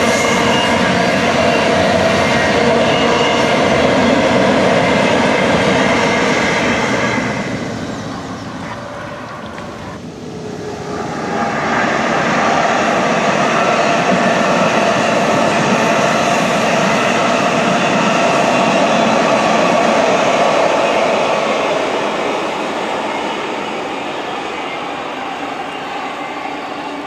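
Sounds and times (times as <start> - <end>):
freight train wheels on rail: 0.0 - 27.0
passenger train approaching: 0.0 - 27.0.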